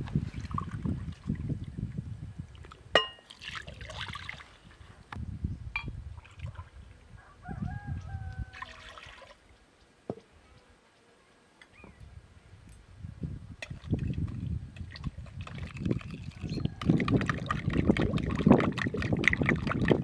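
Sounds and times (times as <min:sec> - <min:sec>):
glass clink: 0:03.0 - 0:03.3
rooster crowing: 0:07.2 - 0:09.0
water pouring into glass: 0:15.4 - 0:20.0.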